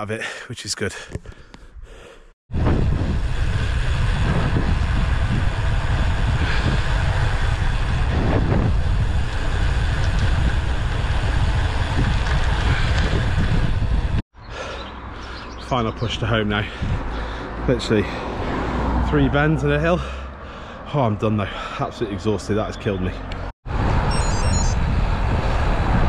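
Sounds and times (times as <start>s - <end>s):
wind buffeting microphone: 2.5s - 14.2s, 15.9s - 19.0s, 24.7s - 26.0s.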